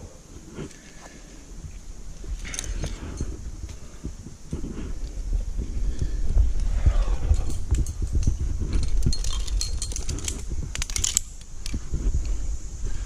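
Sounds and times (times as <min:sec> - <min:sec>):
metal climbing gear jangling: 0:02.4 - 0:03.9, 0:06.6 - 0:12.4.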